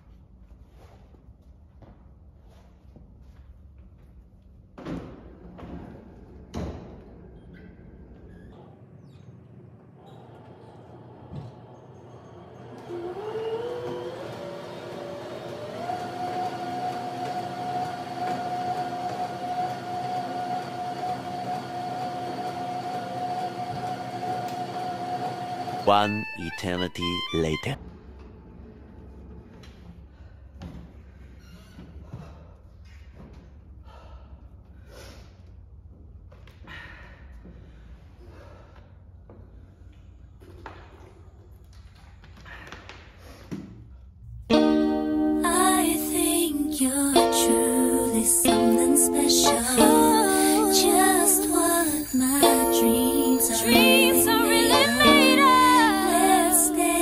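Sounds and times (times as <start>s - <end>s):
stepmill motor whining: 9.7s - 27.4s, 44.5s - 57.0s
woman breathing hard: 33.8s - 35.5s, 36.5s - 39.5s.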